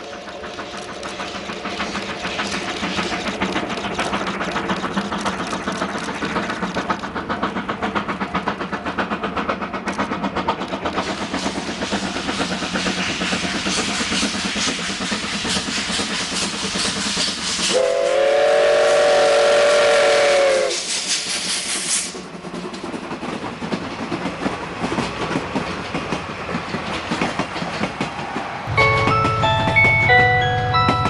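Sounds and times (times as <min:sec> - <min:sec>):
steam locomotive exhaust beating: 0:00.0 - 0:31.0
train wheels clicking over rail joints: 0:00.0 - 0:31.0
steam whistle: 0:17.7 - 0:21.1
chiming background music: 0:28.7 - 0:31.0.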